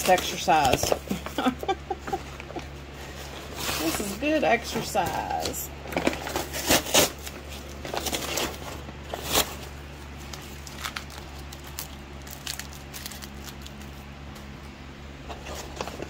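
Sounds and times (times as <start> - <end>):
paper crinkling and rustling: 3.0 - 14.5, 15.2 - 16.0.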